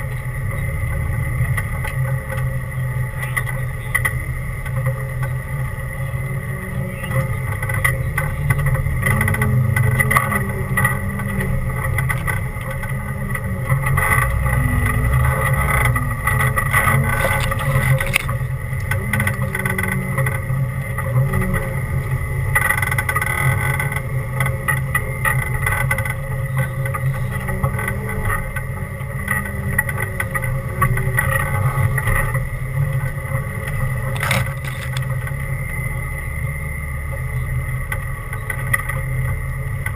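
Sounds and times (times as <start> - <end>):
off-road vehicle engine running: 0.0 - 39.9
vehicle knocks and rattles: 7.0 - 35.3.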